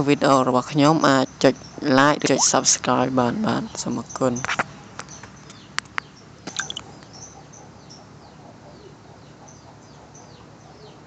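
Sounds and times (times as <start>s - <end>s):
sharp clicks: 6.5s - 6.8s
faint bird chirps: 6.5s - 7.4s.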